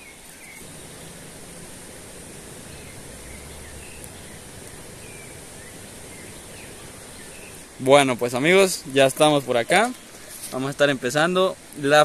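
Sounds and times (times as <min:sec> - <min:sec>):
faint bird chirps: 0:00.0 - 0:01.3
outdoor background hiss: 0:00.0 - 0:12.0.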